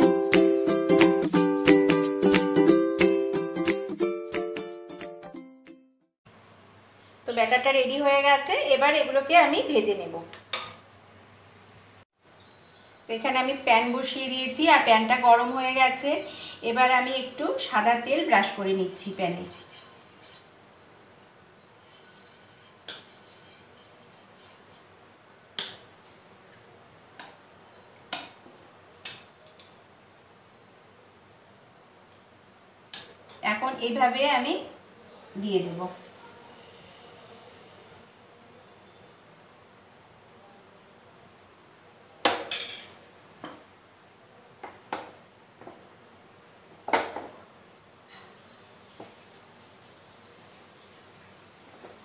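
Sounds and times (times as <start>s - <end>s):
faint steady hiss: 6.3s - 22.0s, 43.5s - 52.0s.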